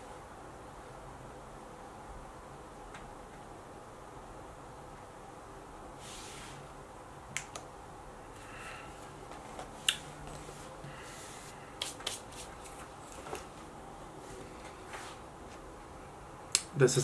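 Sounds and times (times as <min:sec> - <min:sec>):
brush stroke over skin: 0:10.0 - 0:12.9, 0:14.2 - 0:15.2.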